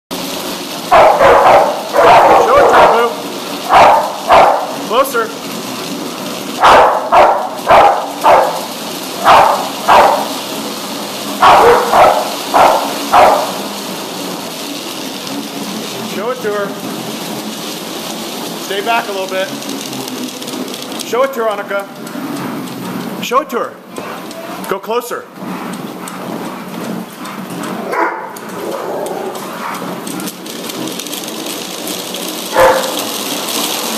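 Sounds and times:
dog barking deeply: 0.9 - 3.1, 3.7 - 4.8, 6.6 - 10.3, 11.4 - 13.7, 27.8 - 29.8
treadmill slats clattering: 16.8 - 33.9.

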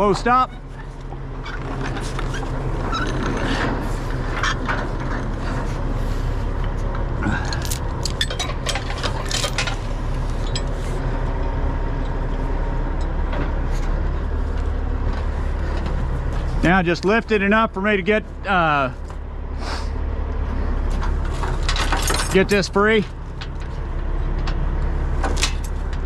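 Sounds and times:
diesel engine running: 0.0 - 26.0
chains clinking and clanking: 7.2 - 10.9, 21.5 - 23.1.

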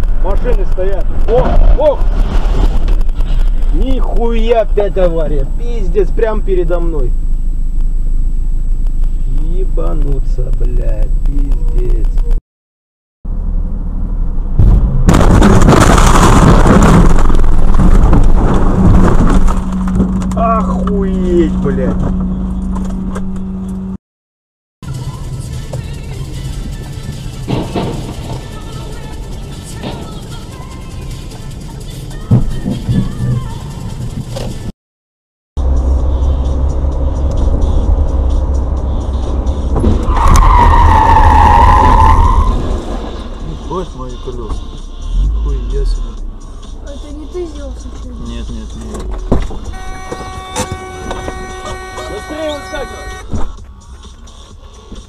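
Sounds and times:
loud distorted crash noise: 0.0 - 4.0, 14.5 - 19.9
car road and engine rumble: 0.0 - 12.4, 13.2 - 24.0, 24.8 - 34.7, 35.6 - 55.0
car crash impact: 1.1 - 4.3, 14.3 - 20.4, 27.4 - 28.9, 39.6 - 41.2, 48.9 - 52.1
loud tyre squeal: 39.0 - 44.0, 49.6 - 53.3.

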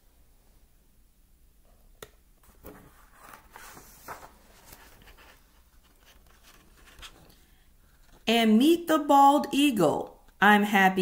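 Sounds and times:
paper pages rustling: 2.4 - 8.3.

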